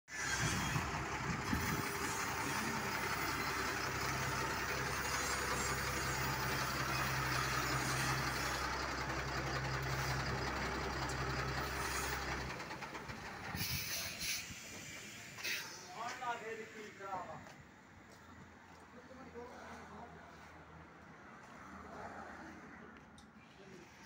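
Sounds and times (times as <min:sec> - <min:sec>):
diesel engine idling: 0:00.1 - 0:15.4.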